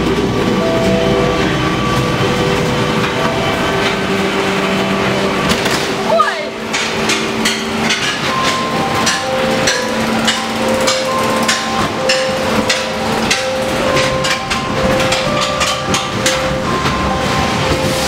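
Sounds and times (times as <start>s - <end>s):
ride car rattling on track: 0.0s - 18.0s
long held tones: 7.3s - 18.0s.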